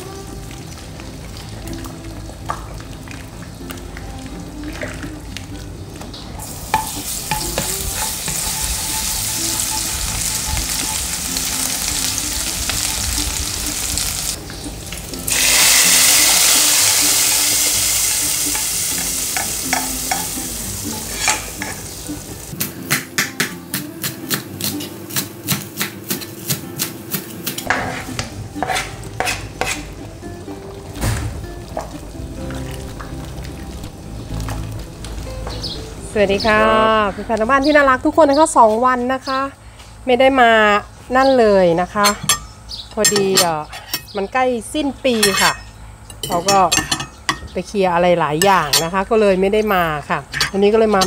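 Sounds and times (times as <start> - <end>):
garlic sizzling in hot oil: 0.0 - 22.7
soup stirred in metal pot: 6.7 - 11.6.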